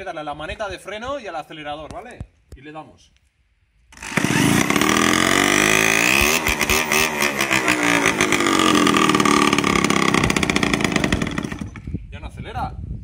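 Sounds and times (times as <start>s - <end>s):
electric drill spinning engine: 4.0s - 11.9s
small motorcycle engine revving: 4.0s - 11.9s.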